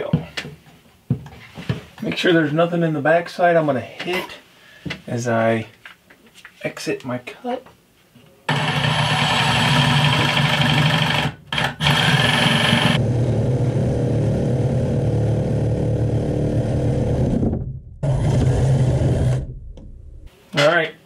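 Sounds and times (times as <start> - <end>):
reciprocating saw cutting pipe: 8.5 - 13.0.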